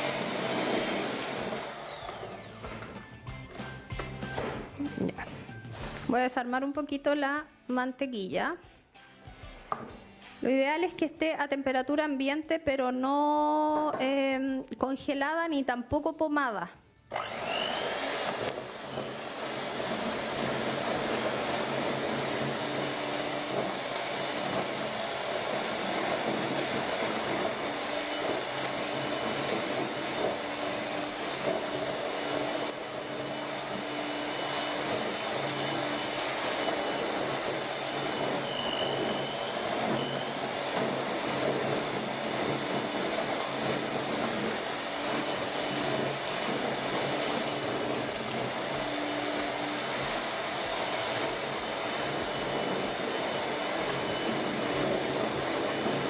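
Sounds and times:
electric hand mixer running: 0.0s - 5.1s, 17.1s - 56.0s.

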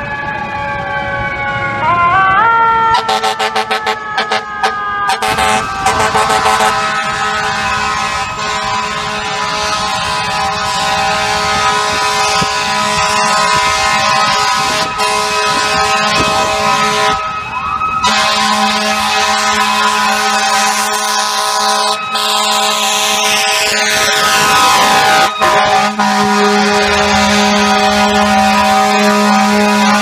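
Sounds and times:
fire truck air horn blasts: 2.1s - 30.0s
siren winding up: 10.5s - 26.1s.

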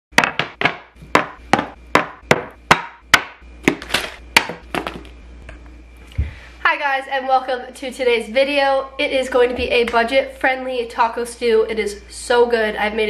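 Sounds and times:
objects knocking on countertop: 0.2s - 5.1s.

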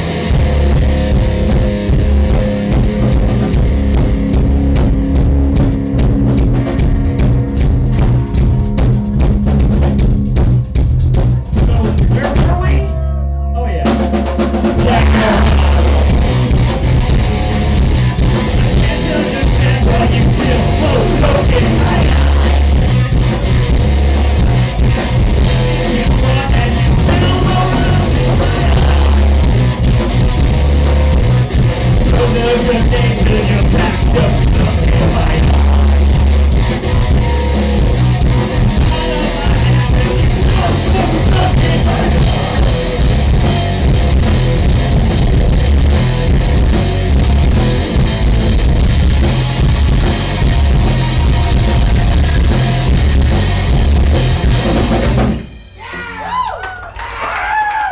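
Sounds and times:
distorted electric guitars: 0.0s - 56.4s
drum kit: 0.0s - 56.5s
person singing: 11.6s - 17.6s, 18.4s - 23.4s, 25.4s - 29.7s, 32.0s - 36.0s, 38.8s - 42.9s.

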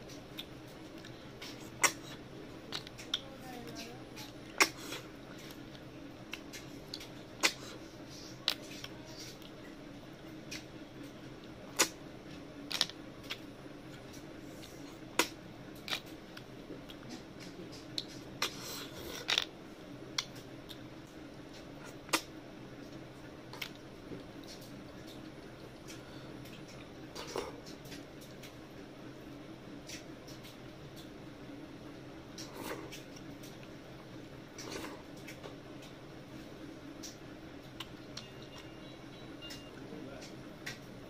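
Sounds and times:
sucking and lip smacks: 6.3s - 9.5s.

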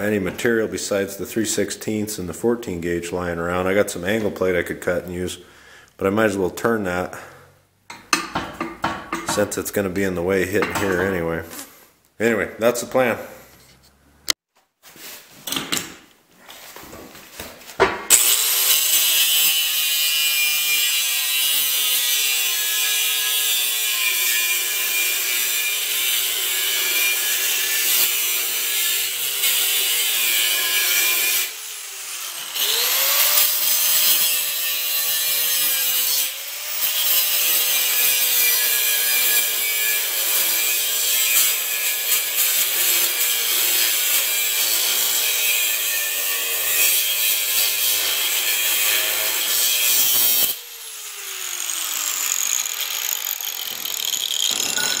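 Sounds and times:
angle grinder cutting steel: 18.1s - 55.0s.

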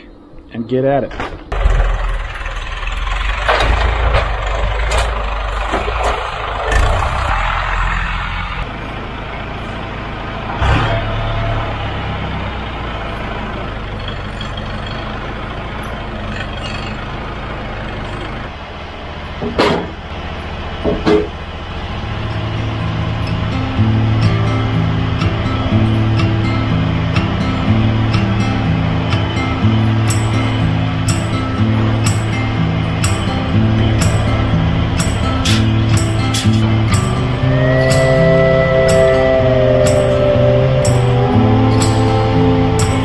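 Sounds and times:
tractor engine running: 1.1s - 43.0s
sharp knocks and clunks: 19.4s - 20.0s, 20.8s - 21.4s.

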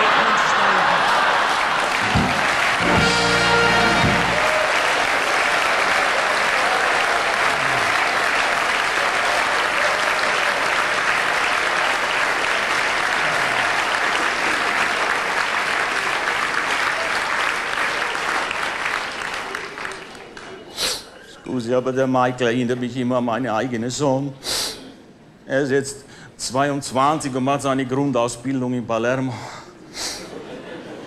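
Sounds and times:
large audience applauding: 0.0s - 20.8s.

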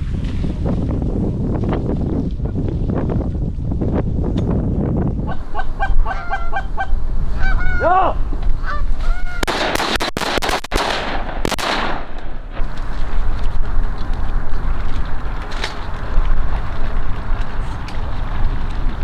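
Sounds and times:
wind on microphone: 0.0s - 9.9s, 10.8s - 19.0s
geese honking: 5.3s - 8.0s, 8.6s - 9.5s.

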